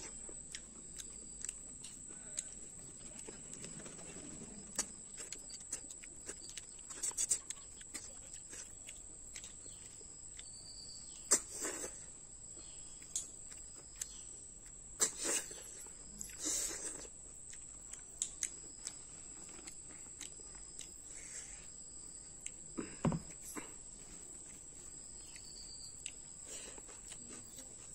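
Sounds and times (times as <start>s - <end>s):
crickets trilling: 0.0s - 27.9s.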